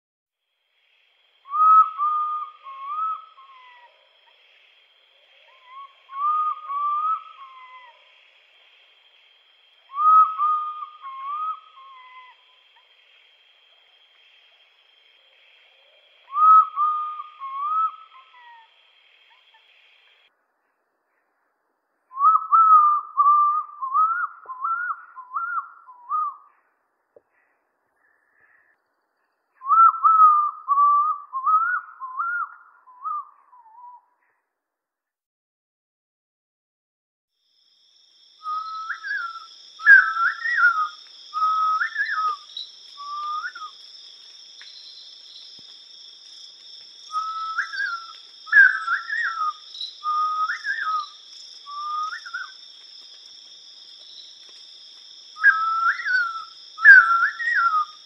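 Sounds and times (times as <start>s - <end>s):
faint high hiss: 0.4s - 20.3s, 38.0s - 58.0s
owl calling: 1.5s - 4.2s, 5.2s - 8.1s, 9.9s - 12.9s, 15.2s - 18.7s, 22.2s - 26.7s, 29.6s - 34.2s, 38.4s - 43.8s, 47.0s - 52.6s, 55.4s - 58.0s.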